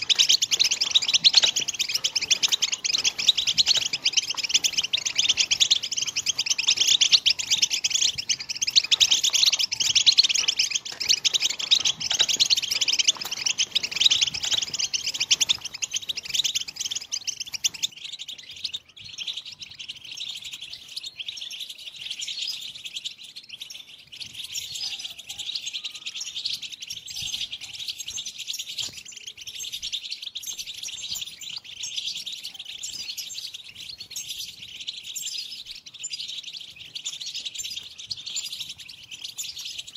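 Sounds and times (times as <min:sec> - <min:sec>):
goldfinches twittering: 0:00.0 - 0:20.7.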